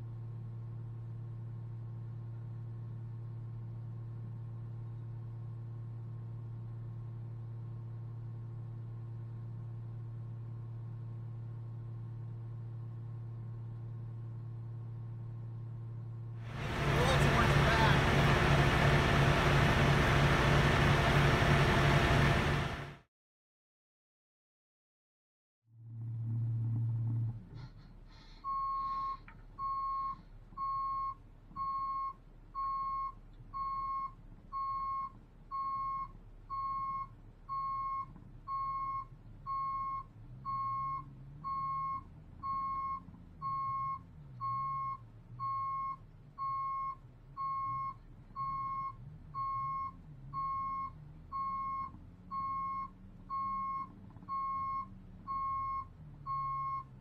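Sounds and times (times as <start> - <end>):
low rumble: 25.7 - 28.1.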